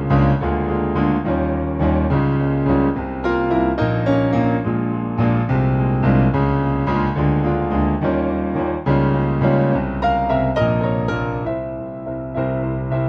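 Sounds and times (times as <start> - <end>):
solo piano music: 0.0 - 13.0.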